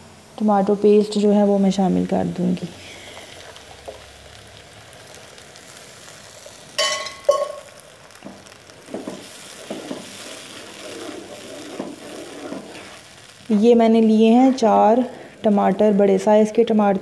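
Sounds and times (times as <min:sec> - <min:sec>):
food sizzling in oil: 0:00.0 - 0:17.0
spatula scraping wok: 0:06.4 - 0:16.0.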